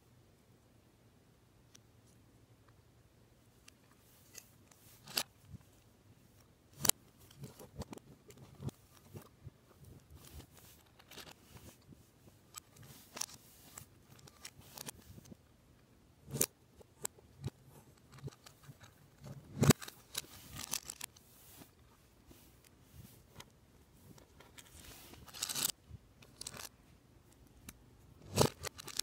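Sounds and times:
plastic pieces clicking together: 16.3 - 21.2, 24.5 - 26.7, 28.2 - 29.0.

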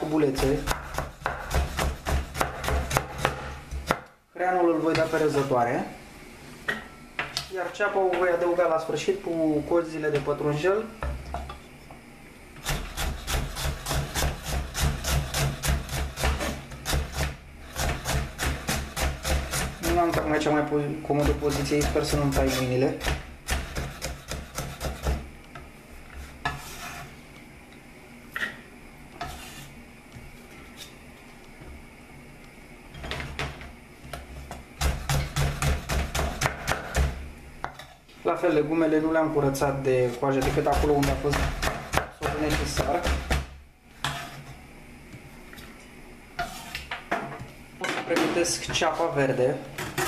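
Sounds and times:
knife chopping on wooden board: 0.2 - 4.1, 12.6 - 20.4, 21.2 - 25.3, 34.1 - 37.8, 40.4 - 44.2.

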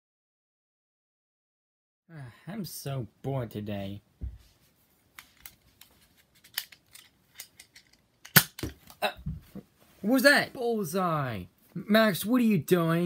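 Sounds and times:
sharp loud snap: 8.3 - 8.8.

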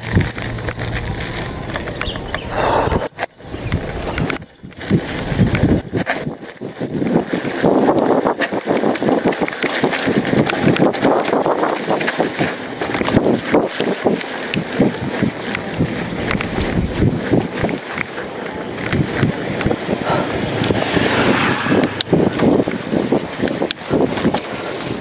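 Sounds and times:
high squeaks: 0.0 - 4.8
tyres crunching over stones: 0.0 - 21.2
bike rattling: 0.0 - 25.0.

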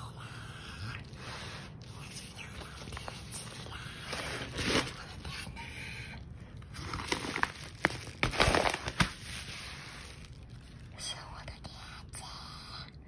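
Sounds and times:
padded envelope crinkling: 2.2 - 5.3, 6.6 - 10.9.

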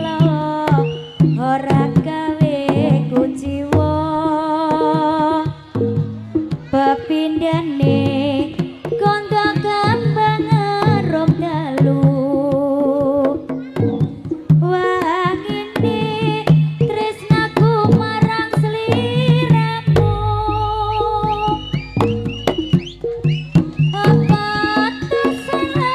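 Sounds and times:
hand drum strokes: 0.0 - 25.9
wavering ornamented melody: 19.9 - 25.9.

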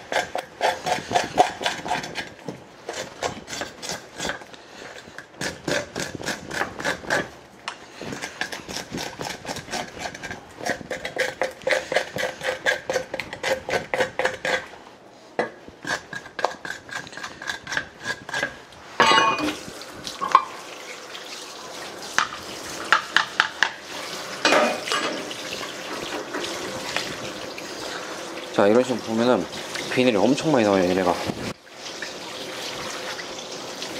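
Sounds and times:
knife scraping fish scales: 0.0 - 14.8, 15.8 - 18.7
tap water running: 19.2 - 33.9.

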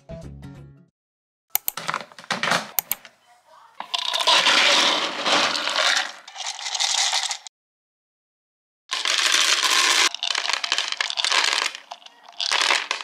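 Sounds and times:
kibble clattering into bowl: 3.8 - 7.4, 8.9 - 13.0
kibble rattling in plastic bin: 3.8 - 7.5, 8.9 - 13.0.

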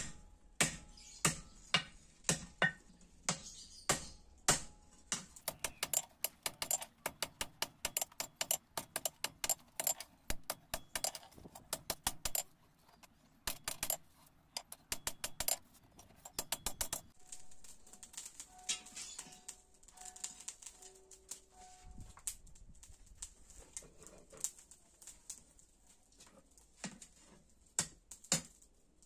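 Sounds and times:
hammer striking metal on anvil: 0.0 - 9.6.

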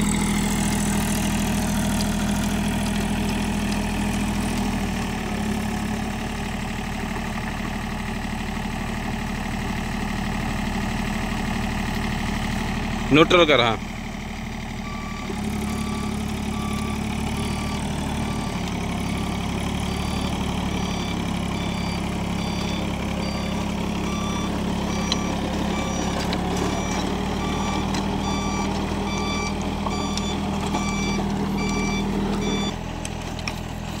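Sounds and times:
rotary tiller in soil: 0.0 - 7.4, 15.2 - 34.0
tractor diesel engine running: 0.0 - 34.0
electronic beeps: 14.9 - 32.7.

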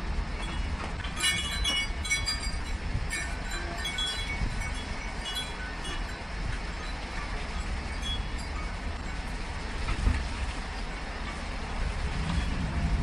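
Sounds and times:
low storm rumble: 0.0 - 13.0
wind chimes tinkling: 0.4 - 9.4.

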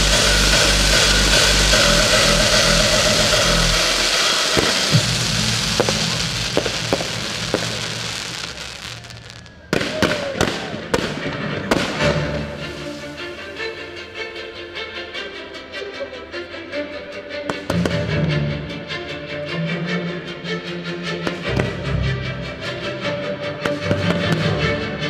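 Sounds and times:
fireworks rushing hiss: 0.0 - 10.7, 11.7 - 13.8
fireworks bangs: 0.0 - 13.6
music: 0.0 - 25.0.

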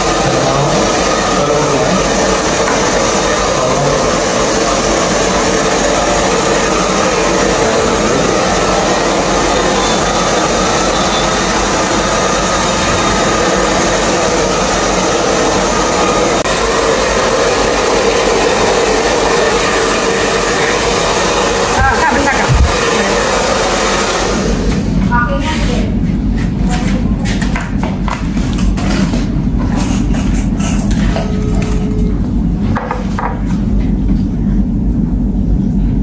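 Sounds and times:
hair dryer running: 0.0 - 25.3.

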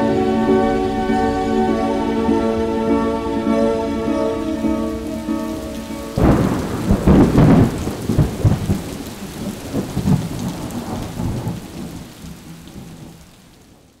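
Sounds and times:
rain falling: 0.0 - 14.0
thunderclap and rolling thunder: 6.1 - 13.9.

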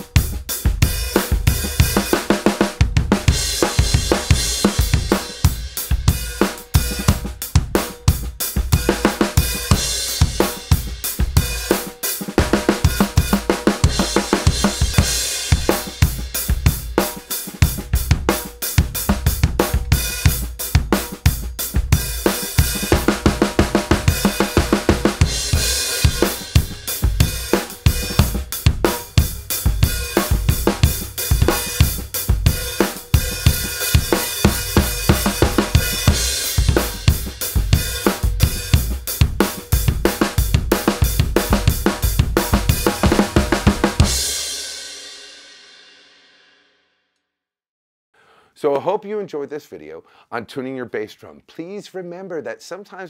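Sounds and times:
snare drum: 0.0 - 44.7
bass drum thumps: 2.8 - 6.2, 17.6 - 44.3
cymbals: 8.7 - 45.8.

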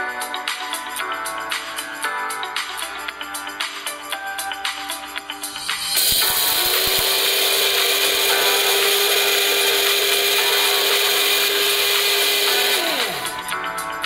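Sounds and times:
electric grinder whining: 6.0 - 13.5
grinder blades spinning down: 6.0 - 13.5.

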